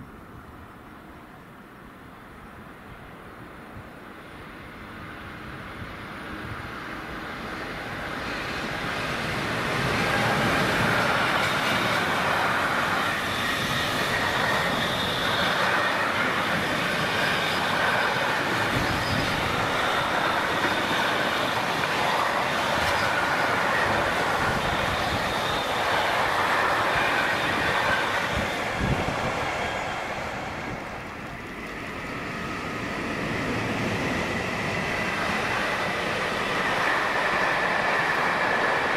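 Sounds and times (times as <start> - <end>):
train wheels rolling on rails: 4.0 - 38.9
high wheel squeal: 8.1 - 29.0.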